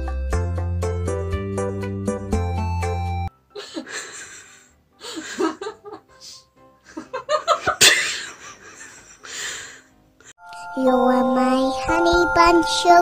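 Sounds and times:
person laughing: 3.5s - 9.4s.

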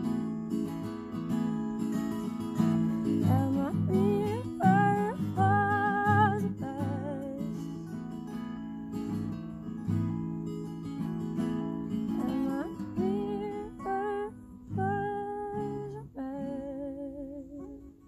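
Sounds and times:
woman singing: 0.0s - 8.0s, 11.9s - 18.0s
acoustic guitars strummed and picked: 0.0s - 18.0s.

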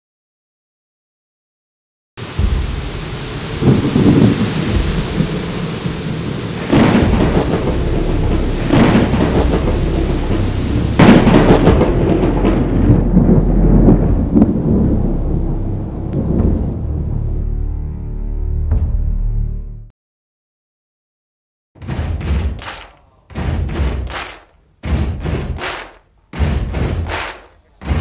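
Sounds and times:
steady rain: 2.2s - 16.2s, 22.6s - 28.0s
thunder rolling: 2.2s - 17.2s.

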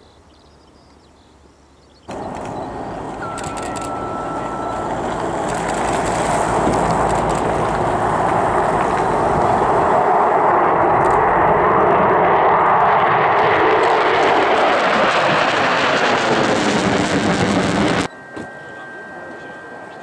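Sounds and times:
jet engines at take-off power: 2.1s - 19.8s.

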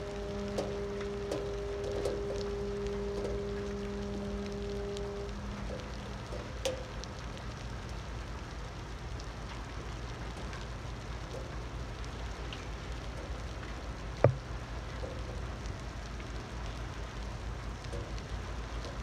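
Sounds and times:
low rumble: 0.0s - 8.4s
rain hissing: 0.0s - 19.0s.

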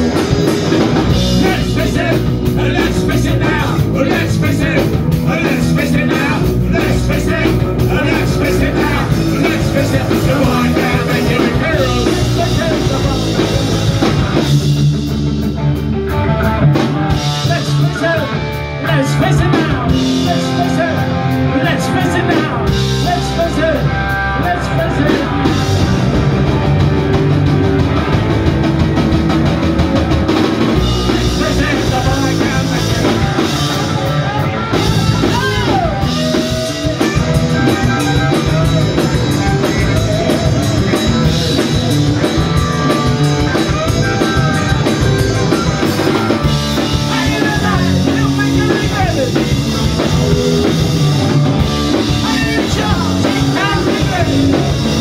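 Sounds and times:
punk rock band playing live: 0.0s - 55.0s
person singing: 1.3s - 14.0s, 30.8s - 41.5s, 42.4s - 50.3s, 51.9s - 55.0s.

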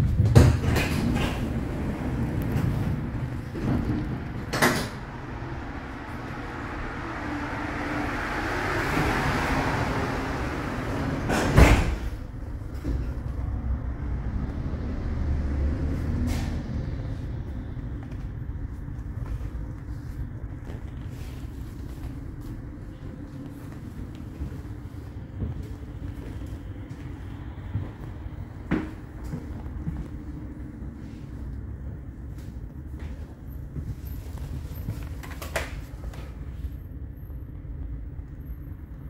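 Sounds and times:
tram car rumble: 0.0s - 39.0s.

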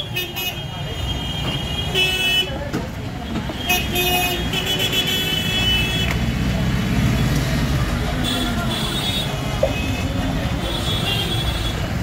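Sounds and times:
passing vehicles rumbling: 0.0s - 12.0s
vehicle horns tooting: 3.3s - 6.2s, 8.2s - 12.0s.

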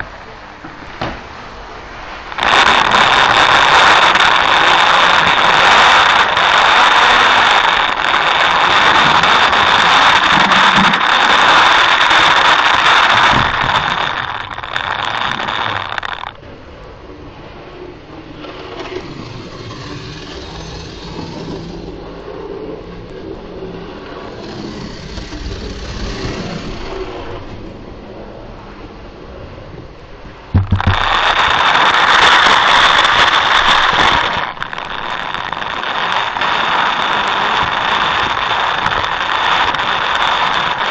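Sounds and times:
faint steady hiss: 0.0s - 40.9s
wheels rolling on rails: 0.0s - 40.9s
small electric motor whining: 24.3s - 27.0s, 30.6s - 40.9s.

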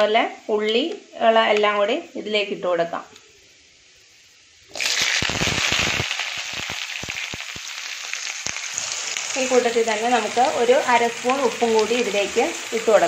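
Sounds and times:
food sizzling in hot oil: 3.4s - 13.0s.

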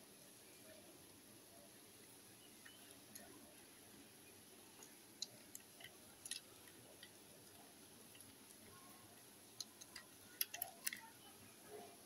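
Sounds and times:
plastic toy clicks and taps: 9.6s - 11.1s.

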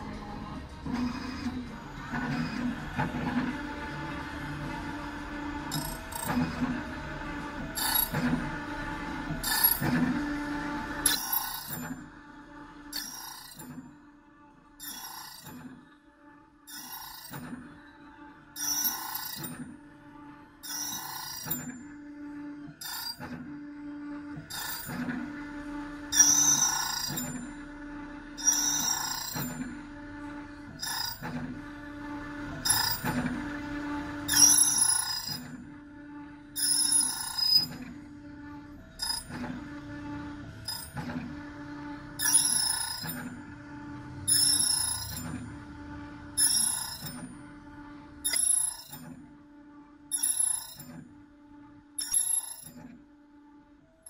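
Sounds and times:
machine motor hum: 0.0s - 54.0s
cutting wheel grinding key: 5.6s - 6.8s, 7.6s - 8.5s, 9.3s - 10.3s, 11.0s - 12.0s, 12.9s - 13.8s, 14.8s - 15.7s, 16.7s - 17.6s, 18.6s - 19.6s, 20.6s - 21.8s, 22.8s - 23.3s, 24.4s - 25.2s, 26.1s - 27.6s, 28.4s - 29.8s, 30.7s - 31.5s, 32.6s - 33.4s, 34.2s - 35.6s, 36.6s - 38.0s, 38.9s - 39.8s, 40.6s - 41.4s, 42.1s - 45.6s, 46.4s - 47.4s, 48.2s - 49.1s, 50.1s - 51.0s, 52.0s - 52.8s.

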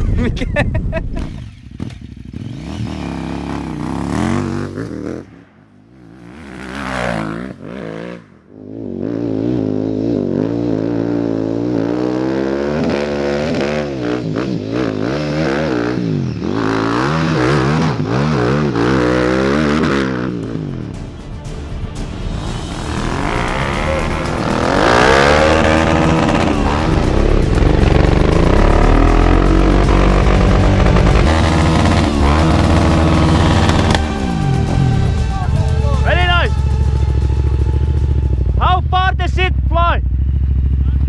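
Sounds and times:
motorcycle engine revving: 1.1s - 21.0s, 22.4s - 41.0s.

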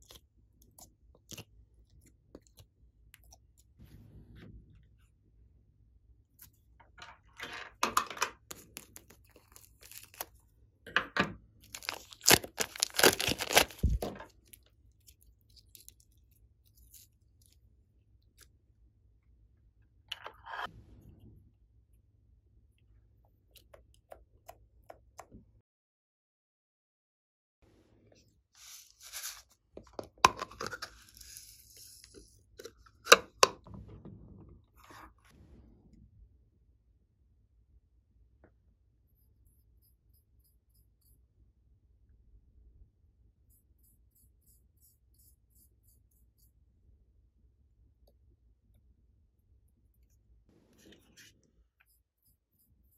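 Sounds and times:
clay cracking and crackling: 8.3s - 10.5s, 11.6s - 18.6s
plastic bag crinkling and tearing: 11.7s - 14.1s
slime squishing: 11.7s - 17.6s.

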